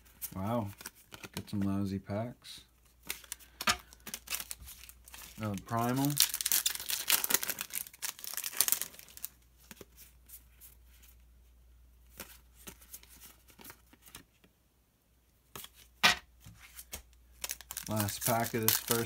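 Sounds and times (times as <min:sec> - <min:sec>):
foil wrapper crinkling: 0:03.0 - 0:09.4, 0:17.4 - 0:19.0
loud handling crackle: 0:17.4 - 0:19.0.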